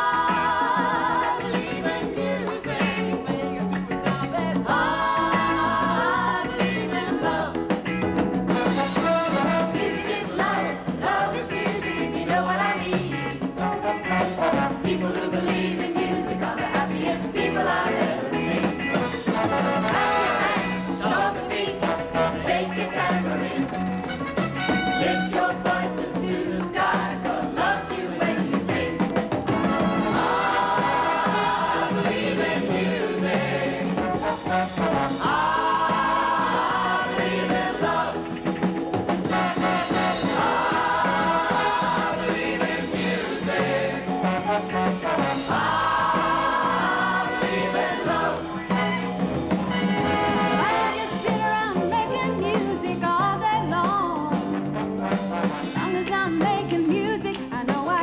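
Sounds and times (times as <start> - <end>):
chorus singing: 0.0 - 52.0
upbeat music with brass section: 0.0 - 58.0.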